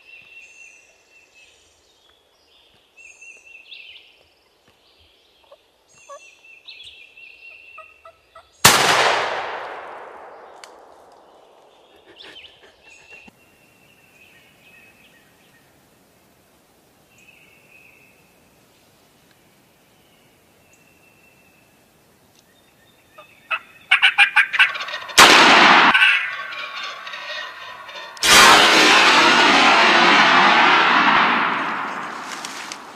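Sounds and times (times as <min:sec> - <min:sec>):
turkey gobbling: 0:23.5 - 0:28.2
loud sudden bangs: 0:25.0 - 0:32.9.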